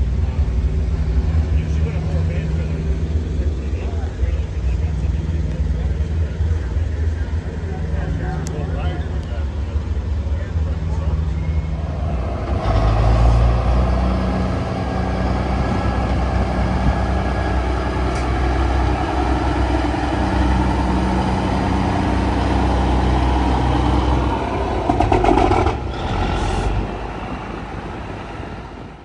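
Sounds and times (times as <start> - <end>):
diesel truck engine pulling away: 9.8 - 29.0.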